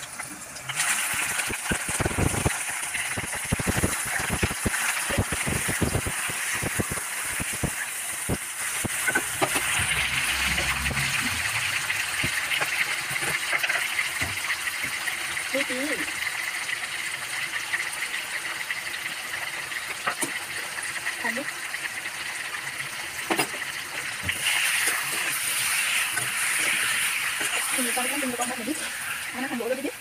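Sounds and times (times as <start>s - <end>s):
chicken sizzling in hot oil: 0.0s - 30.0s
oil spattering crackles: 0.6s - 10.0s.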